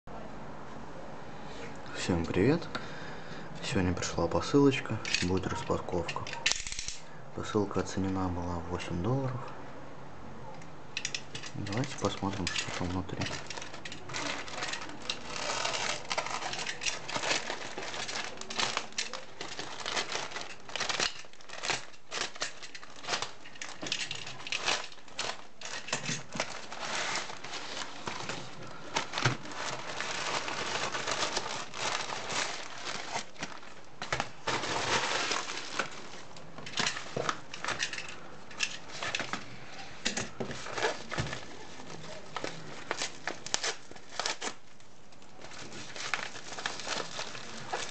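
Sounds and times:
plastic and paper mailers crinkling: 3.7s - 7.0s, 11.0s - 47.9s
mailer tearing open: 11.1s - 37.8s, 40.5s - 44.6s, 45.5s - 47.9s.

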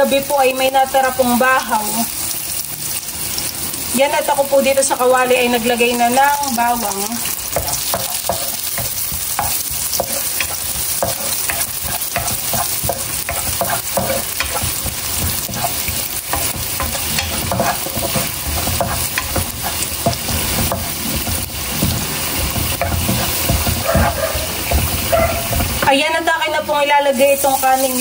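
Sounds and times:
garlic sizzling in hot oil: 0.0s - 28.0s
wooden spatula scraping a pan: 7.2s - 26.0s.

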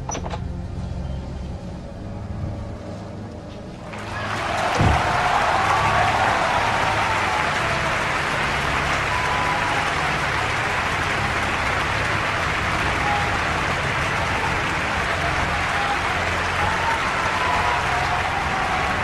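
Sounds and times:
low droning hum: 0.0s - 4.0s.

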